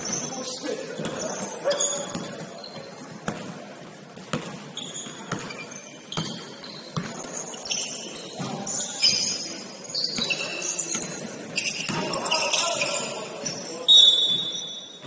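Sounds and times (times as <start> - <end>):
sneakers squeaking on floor: 0.0 - 15.0
basketball dribbling on court: 1.9 - 8.8.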